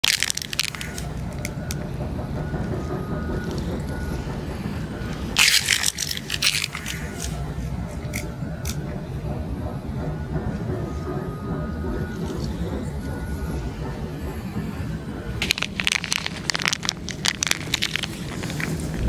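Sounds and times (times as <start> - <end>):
cat crunching kibble: 0.0 - 1.7, 5.3 - 7.4, 15.4 - 19.0
kibble scraping metal: 0.0 - 8.8
low rumble: 12.8 - 19.0.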